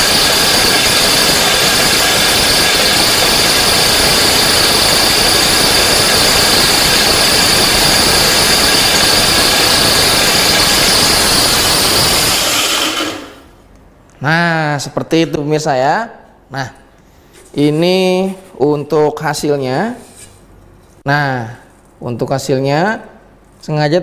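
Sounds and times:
flour mill grinding with whine: 0.0 - 13.6.

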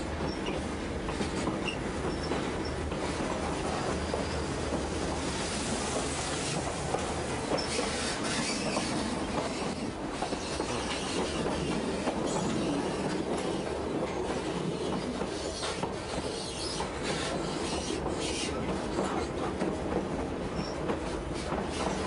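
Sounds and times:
train wheels rumbling and rattling: 0.0 - 22.0.

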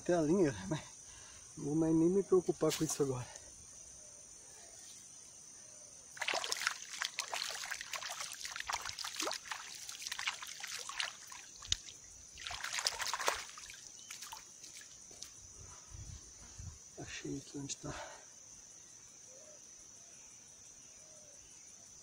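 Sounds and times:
hands splashing in water: 6.2 - 15.0
water trickling and dripping: 6.2 - 15.4.

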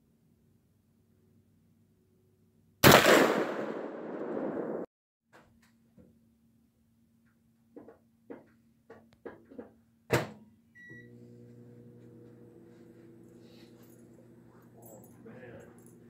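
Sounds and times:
microwave beep: 10.8 - 12.1
microwave running hum: 10.8 - 16.0.

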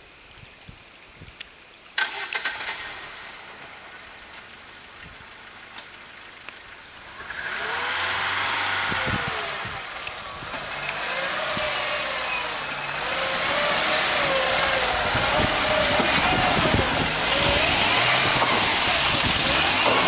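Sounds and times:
car engine revving: 7.0 - 20.0.

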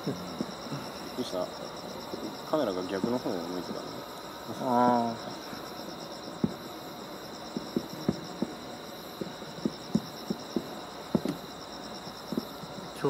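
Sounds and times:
crickets trilling: 0.0 - 13.0
sharp pops or clicks: 9.2 - 11.4.

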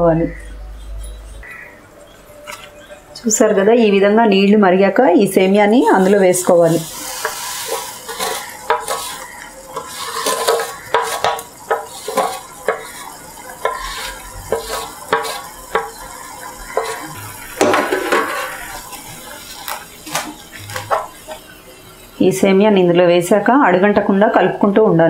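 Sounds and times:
water boiling in a pan: 5.5 - 22.4.

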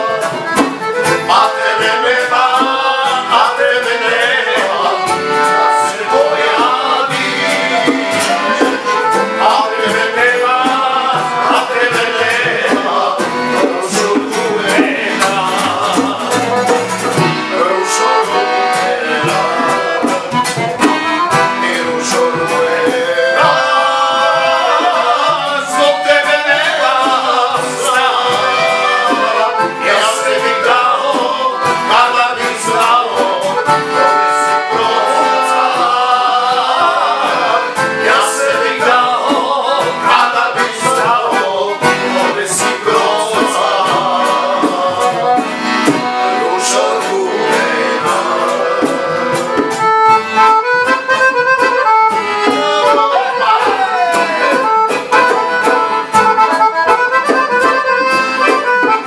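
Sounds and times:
folk band with accordion: 0.0 - 59.0.

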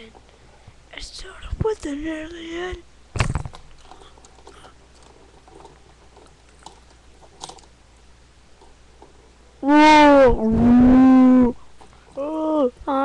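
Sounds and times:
clicks and rustles of toys: 3.2 - 7.7.

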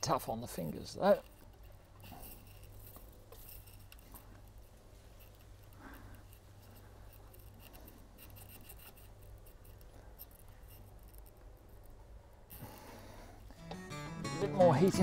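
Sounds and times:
fishing line scratching through adhesive: 1.0 - 13.0.

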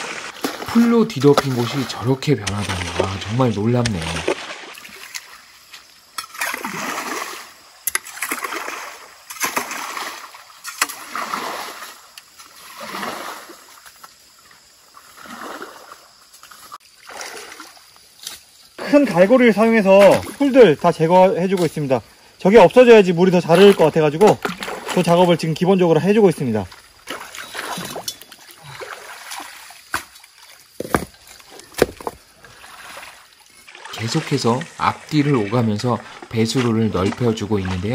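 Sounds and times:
muddy water sloshing and splashing: 0.0 - 37.9
sharp knocks: 30.8 - 31.2.

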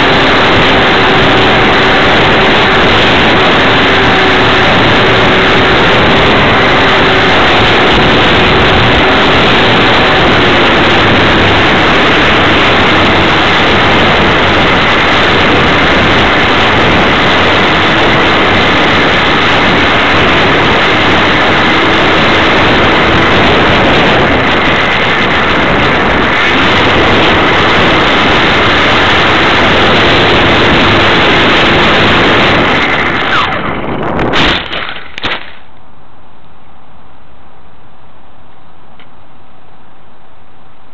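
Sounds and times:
model plane motor and wind rush: 0.0 - 40.9
sharp cracks: 32.6 - 35.7.

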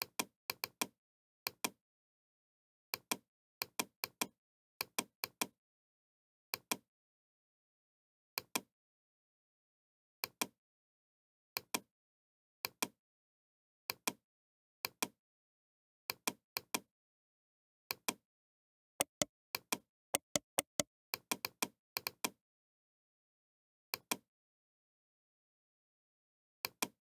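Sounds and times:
computer mouse clicks: 19.0 - 19.3, 20.2 - 20.8.

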